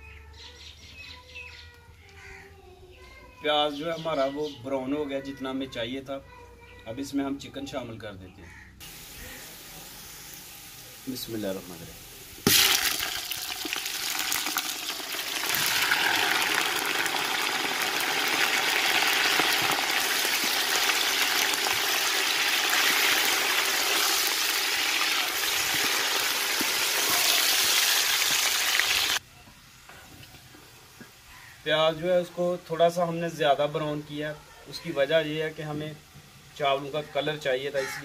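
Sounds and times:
chicken sizzling in hot oil: 8.8s - 29.2s
wooden spatula turning food: 12.5s - 28.5s.

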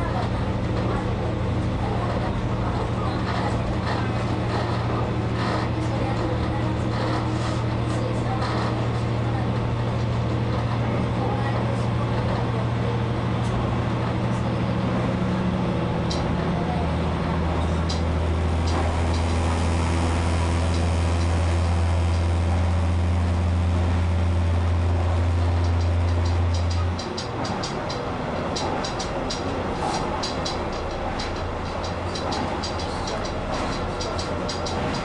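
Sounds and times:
railcar engine drone: 0.0s - 35.0s
wheel and rail noise: 0.0s - 35.0s
light clicks from track: 16.0s - 16.4s, 17.6s - 19.5s, 25.5s - 35.0s.

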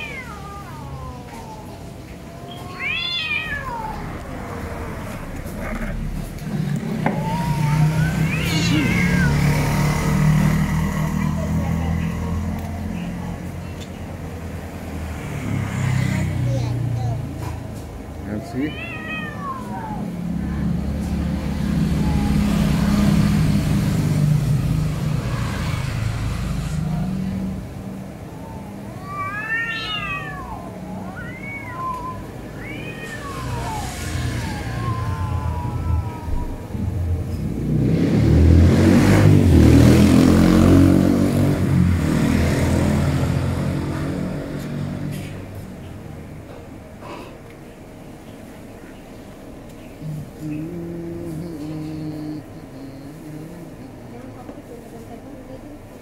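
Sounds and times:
cat yowling: 0.0s - 12.4s, 18.2s - 25.0s, 27.9s - 37.5s
vehicle engine humming: 0.0s - 56.0s.

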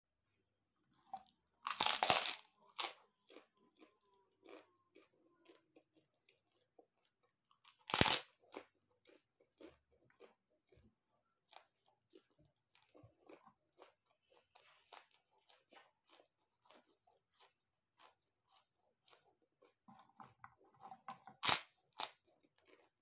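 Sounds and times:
crunchy chewing: 0.9s - 23.0s
pork rinds crunching: 1.2s - 10.8s, 14.9s - 23.0s.

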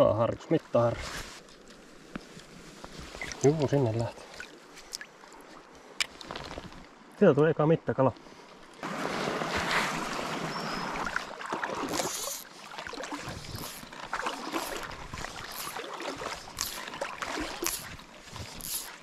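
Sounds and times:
river water splashing: 3.1s - 7.1s, 8.2s - 19.0s.

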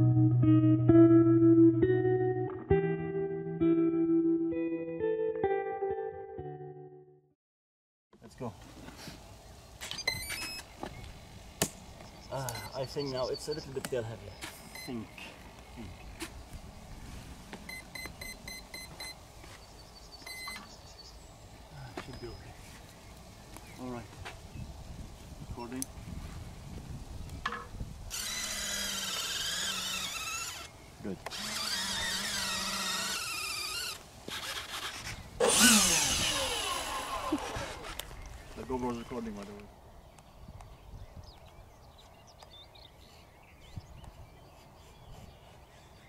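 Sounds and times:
short electronic beeps: 12.5s - 12.8s, 14.7s - 15.0s, 17.7s - 19.2s, 20.3s - 20.6s
higher fainter beeps: 14.7s - 15.0s, 17.7s - 19.2s, 20.3s - 20.6s
small electric motor whine: 28.1s - 38.2s.

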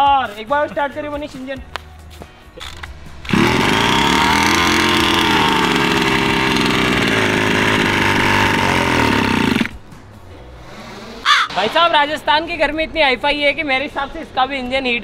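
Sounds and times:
two-stroke engine running: 2.7s - 9.8s.

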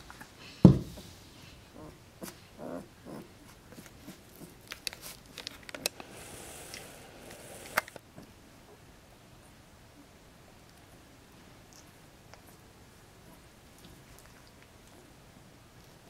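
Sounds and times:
puppies grunting softly: 1.6s - 4.6s
faint clicks and rustles: 3.4s - 8.3s.

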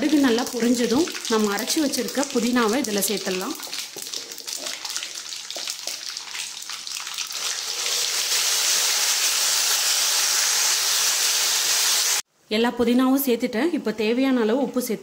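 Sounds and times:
paste sizzling in oil: 0.0s - 12.2s.

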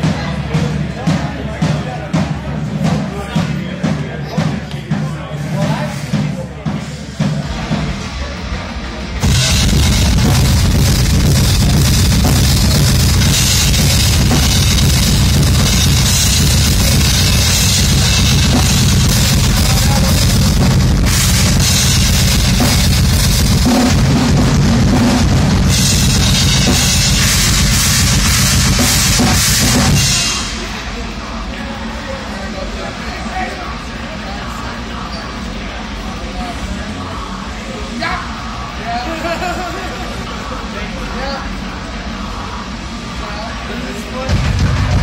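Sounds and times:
cymbals: 0.0s - 34.6s
rock band playing: 6.7s - 31.5s, 44.3s - 45.0s.

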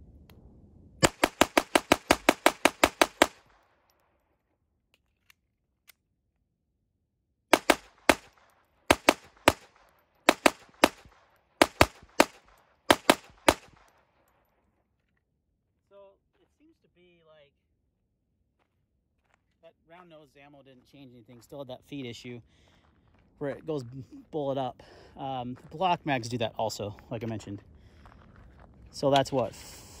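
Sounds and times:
pistol shots: 1.0s - 3.8s, 7.5s - 14.0s.

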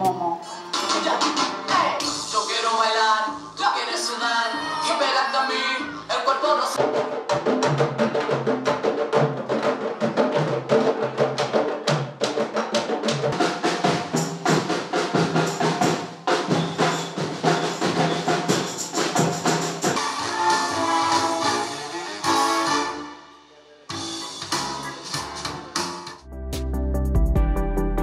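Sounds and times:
drum troupe playing: 0.0s - 2.3s, 6.8s - 26.2s.

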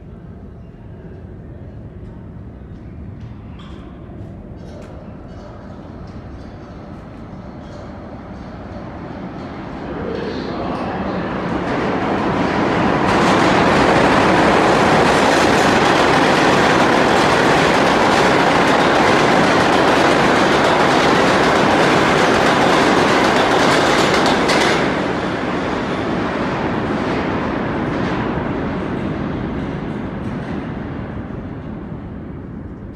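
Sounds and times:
subway train rushing past: 0.0s - 32.9s.

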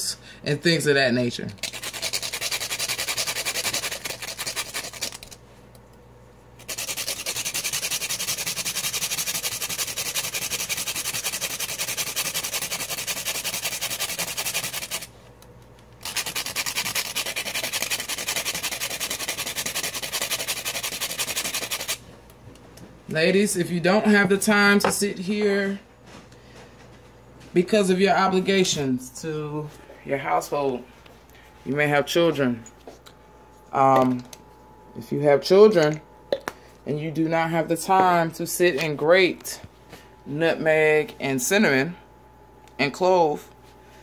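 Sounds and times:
cinnamon rasping on metal grater: 1.6s - 5.4s, 6.6s - 15.1s, 16.0s - 22.0s.

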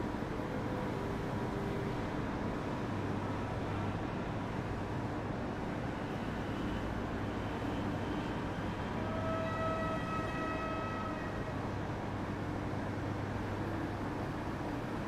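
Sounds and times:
model train horn: 8.8s - 11.6s.

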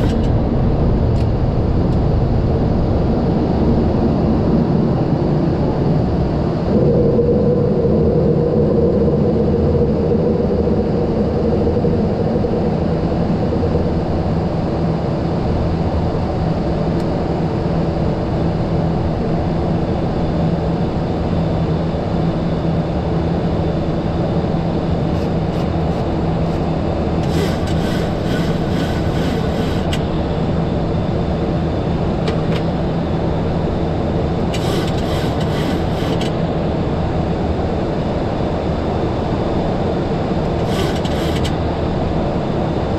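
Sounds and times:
aircraft engine and airflow noise: 0.0s - 42.9s
mid-pitched tone: 6.7s - 14.7s.

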